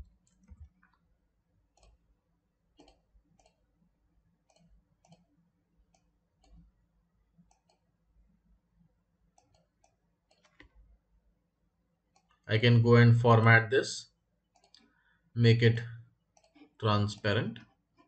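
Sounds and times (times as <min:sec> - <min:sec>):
faint computer mouse clicks: 0:02.8 - 0:03.6, 0:07.5 - 0:07.8, 0:09.4 - 0:10.8.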